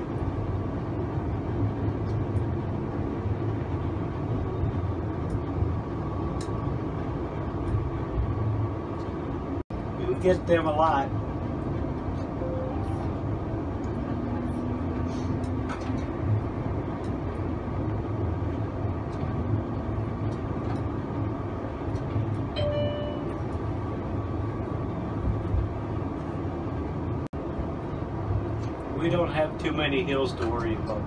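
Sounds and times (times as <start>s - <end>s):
streetcar rumbling on rails: 0.0s - 31.0s
short pitched tone: 12.4s - 13.2s, 22.5s - 23.5s.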